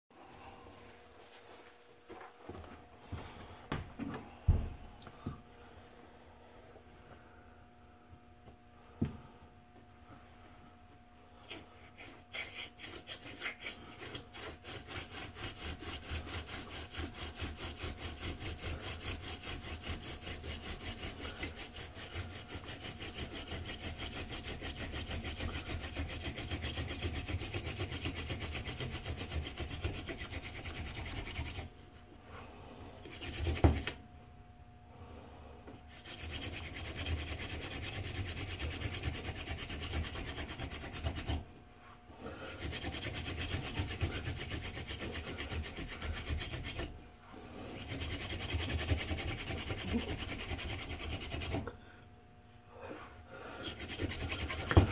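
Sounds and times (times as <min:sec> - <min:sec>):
wooden spindle rubbing on board: 0:11.4 - 0:31.7, 0:33.1 - 0:34.0, 0:35.9 - 0:41.4, 0:42.4 - 0:47.0, 0:47.8 - 0:51.7, 0:53.6 - 0:54.9.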